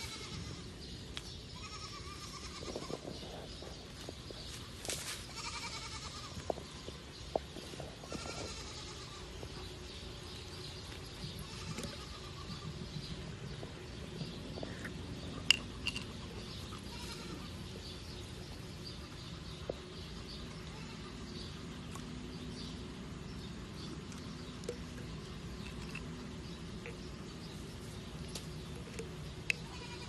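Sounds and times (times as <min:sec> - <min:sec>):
outdoor ambience: 0:00.0 - 0:30.0
goats bleating: 0:01.6 - 0:02.9, 0:05.3 - 0:07.0, 0:08.0 - 0:09.3, 0:16.7 - 0:17.5, 0:29.6 - 0:30.0.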